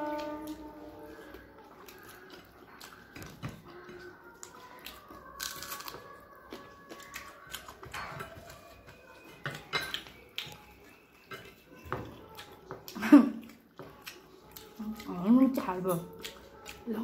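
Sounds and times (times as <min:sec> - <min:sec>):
mouths smacking and chewing: 0:01.1 - 0:17.0.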